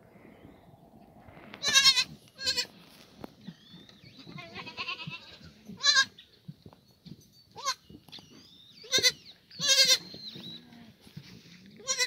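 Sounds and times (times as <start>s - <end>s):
goats bleating: 1.6s - 2.7s, 4.3s - 6.2s, 8.9s - 10.0s, 11.8s - 12.0s.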